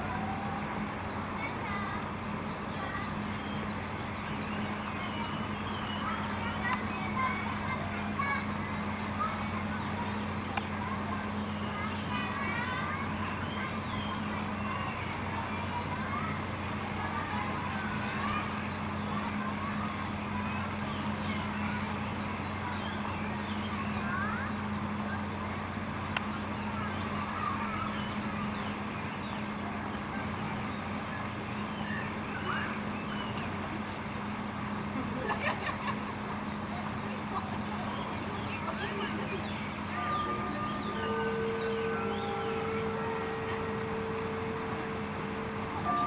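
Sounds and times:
distant voices: 0:00.0 - 0:46.0
low hum: 0:23.4 - 0:46.0.

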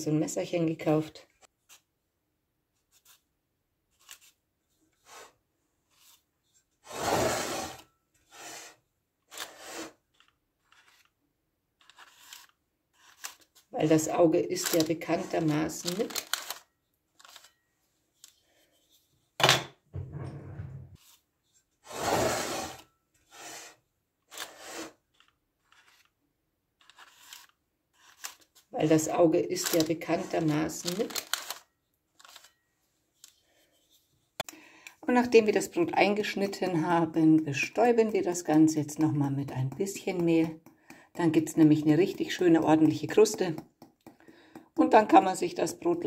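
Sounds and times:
blade scraping baking paper: 0:06.8 - 0:11.1, 0:11.8 - 0:13.6, 0:21.8 - 0:26.1, 0:26.8 - 0:28.6, 0:29.5 - 0:31.3.

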